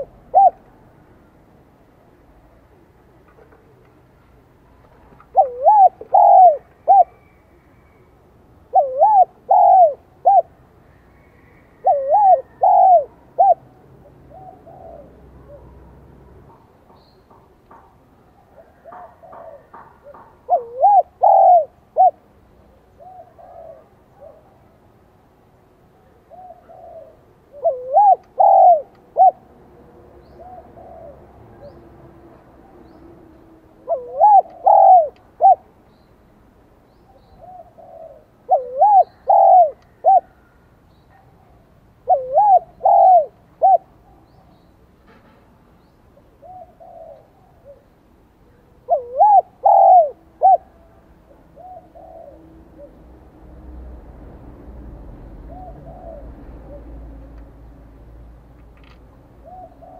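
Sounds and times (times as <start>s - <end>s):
dove cooing: 0.0s - 0.8s, 5.0s - 7.8s, 8.6s - 10.6s, 11.2s - 16.6s, 18.4s - 24.7s, 26.2s - 29.5s, 30.2s - 31.8s, 33.8s - 35.7s, 37.1s - 41.2s, 42.0s - 44.5s, 46.2s - 53.1s, 55.4s - 57.0s, 59.4s - 59.9s.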